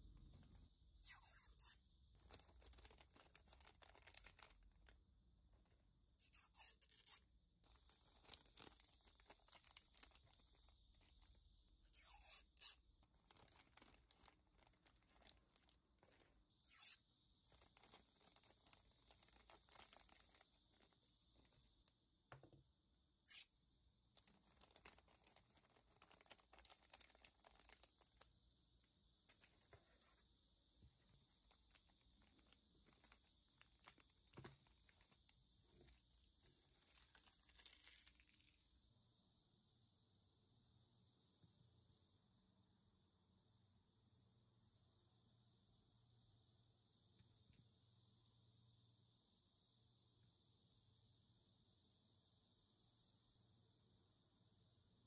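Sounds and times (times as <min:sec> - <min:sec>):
plastic bags crinkling: 0:02.2 - 0:05.0, 0:07.7 - 0:11.3, 0:12.3 - 0:21.0, 0:24.1 - 0:28.3, 0:31.2 - 0:38.6.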